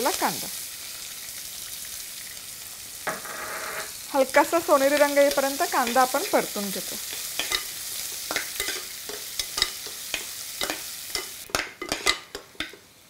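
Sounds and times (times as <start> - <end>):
onion sizzling in hot oil: 0.0 - 13.0
spatula scraping and tapping pot: 7.1 - 12.8.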